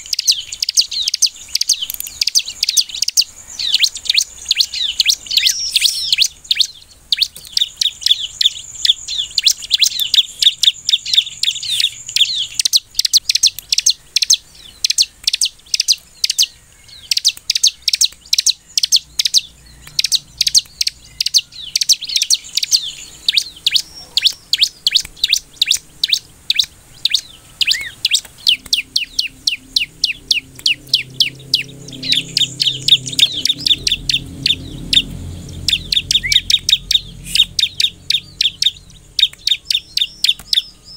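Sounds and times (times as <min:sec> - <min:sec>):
bird chirping and trilling: 0:00.0 - 0:40.9
faint low hum: 0:00.0 - 0:40.9.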